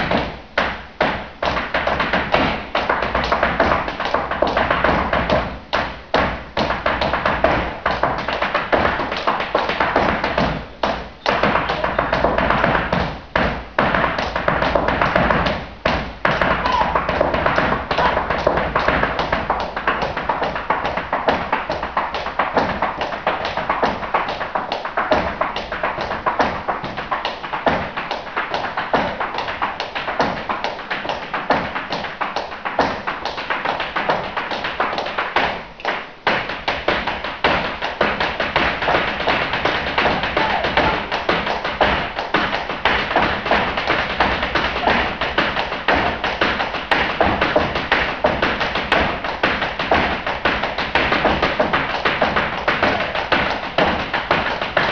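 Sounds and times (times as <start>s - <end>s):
dance shoes striking wooden stage: 0.0s - 54.9s.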